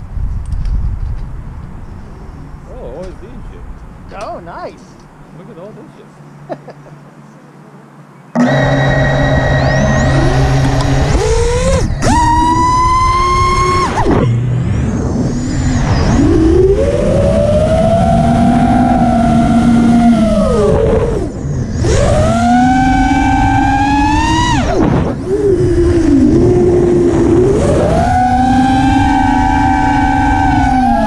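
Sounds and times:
drone motors whining: 8.3s - 31.0s.

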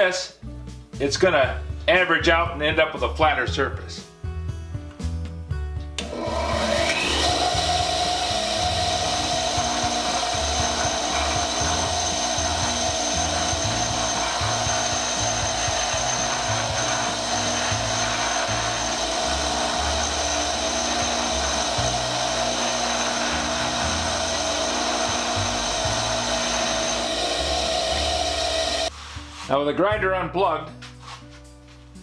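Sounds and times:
bench grinder motor whine: 6.0s - 28.9s
brick grinding on wheel: 6.2s - 28.9s.

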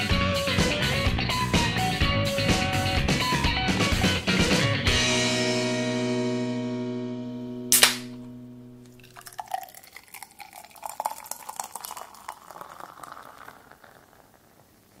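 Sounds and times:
beer pouring into a glass: 8.9s - 15.0s.

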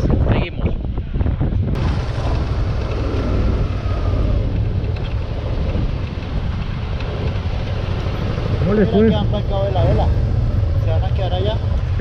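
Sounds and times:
wind rushing on microphone: 0.0s - 12.0s
motorcycle engine running: 1.8s - 12.0s.

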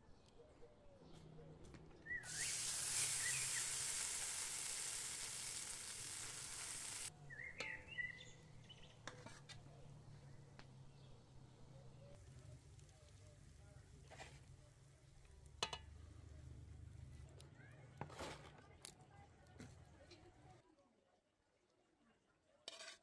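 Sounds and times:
water draining through colander: 2.2s - 7.1s.

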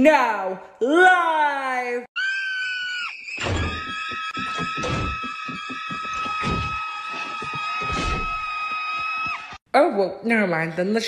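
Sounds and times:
cartoon girl screaming: 2.2s - 6.9s
dull thumps: 3.4s - 9.4s.

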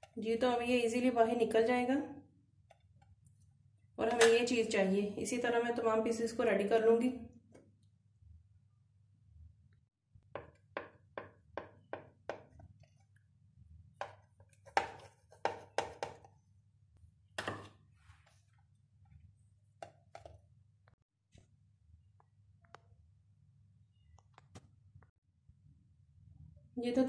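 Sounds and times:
knife cutting bread: 14.0s - 16.3s.

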